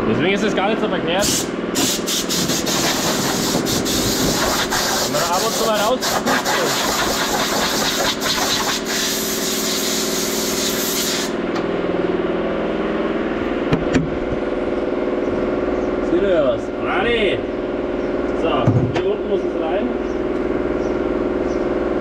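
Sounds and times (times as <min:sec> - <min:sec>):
loud hiss: 0:01.2 - 0:11.4.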